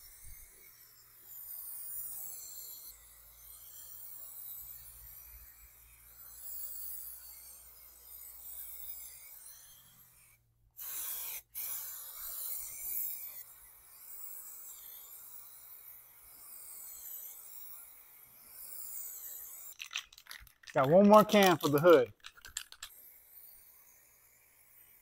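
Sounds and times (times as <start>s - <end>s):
aerosol spray hissing: 10.0s - 19.8s.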